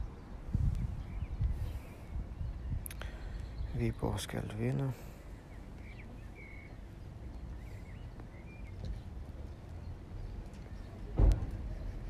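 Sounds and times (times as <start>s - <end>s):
faint bird chirps: 5.2s - 12.0s
sharp thump: 11.2s - 11.7s.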